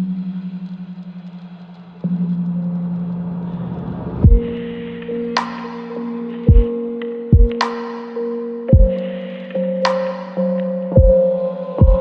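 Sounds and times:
electronic background music: 0:00.0 - 0:12.0
sharp high hit: 0:03.3 - 0:08.2
deep bass hits: 0:04.0 - 0:04.6.

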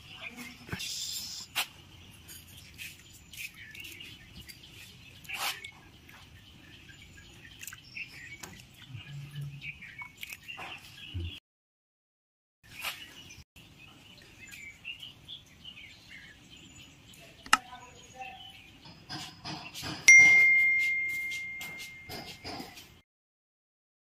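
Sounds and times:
faint birds chirping: 0:00.0 - 0:11.4, 0:12.7 - 0:23.0
sharp click: 0:17.4 - 0:17.6
bright bell ding: 0:20.1 - 0:22.4.

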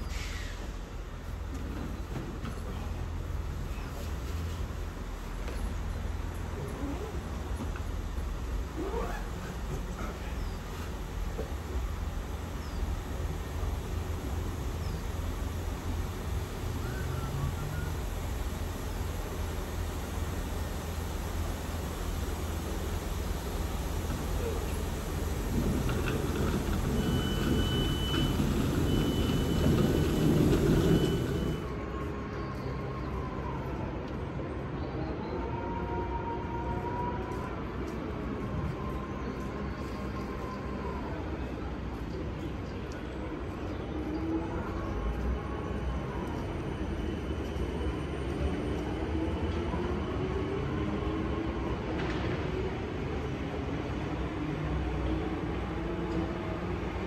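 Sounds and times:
diesel train engine idling: 0:00.0 - 0:33.8
electric train hum: 0:00.0 - 0:57.0
faint steady whine: 0:05.2 - 0:32.2.

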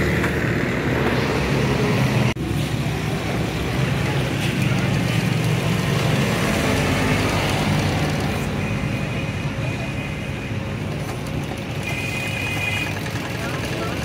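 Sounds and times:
sewing machine running: 0:05.8 - 0:08.5, 0:10.8 - 0:14.0.

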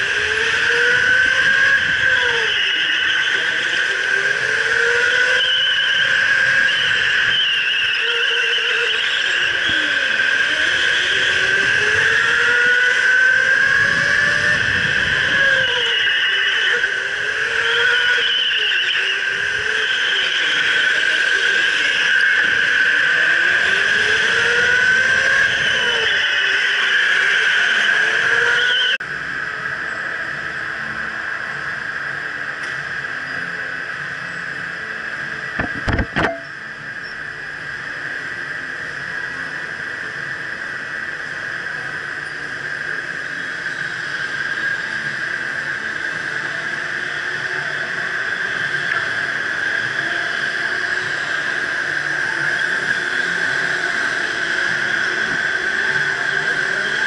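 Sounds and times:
electric motor whining: 0:00.0 - 0:28.9.

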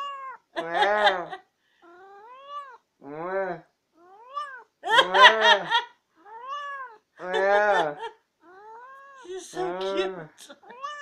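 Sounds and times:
cat meowing: 0:00.0 - 0:00.4, 0:01.8 - 0:02.8, 0:04.0 - 0:04.7, 0:06.2 - 0:07.0, 0:08.4 - 0:11.0.

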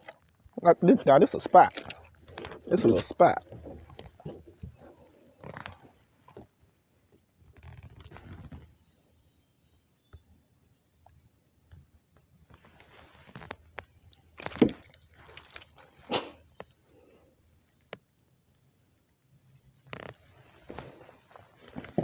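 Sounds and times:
clicks and rustling: 0:12.5 - 0:16.0.

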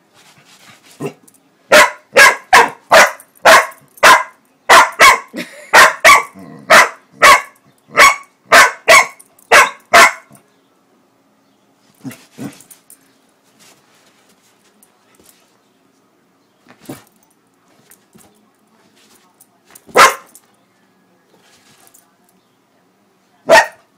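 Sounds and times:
dog barking sharply: 0:01.7 - 0:10.3, 0:19.9 - 0:20.3, 0:23.5 - 0:23.8.

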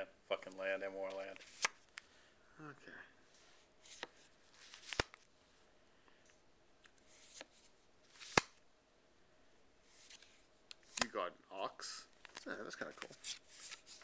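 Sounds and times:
cards laid on plastic table: 0:00.5 - 0:02.1, 0:03.8 - 0:05.3, 0:06.8 - 0:08.6
card snaps and taps: 0:08.2 - 0:08.6, 0:10.8 - 0:11.1.

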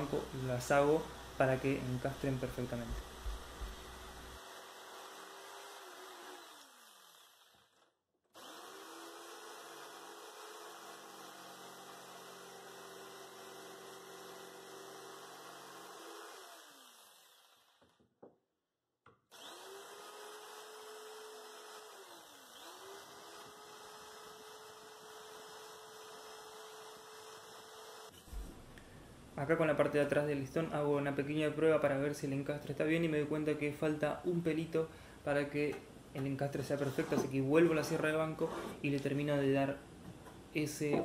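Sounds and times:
jigsaw cutting wood: 0:00.0 - 0:18.0, 0:19.3 - 0:28.3.

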